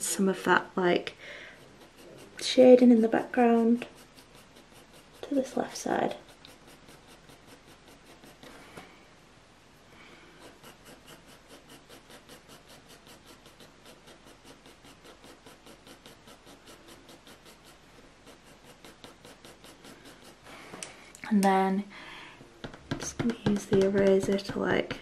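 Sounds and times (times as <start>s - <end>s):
pencil scratching on paper: 0.2s - 8.6s, 10.3s - 20.5s, 22.6s - 25.0s.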